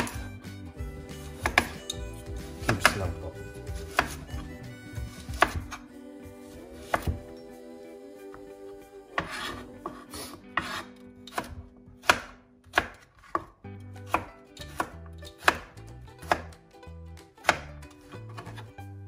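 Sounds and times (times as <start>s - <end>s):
knife chopping on cutting board: 0.0s - 0.3s, 1.3s - 4.4s, 5.0s - 5.8s, 6.8s - 7.2s, 9.2s - 16.6s, 17.4s - 17.7s.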